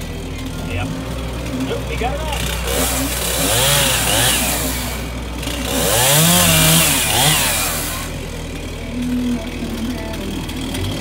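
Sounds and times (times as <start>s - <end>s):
chainsaw cutting wood: 1.0s - 11.0s.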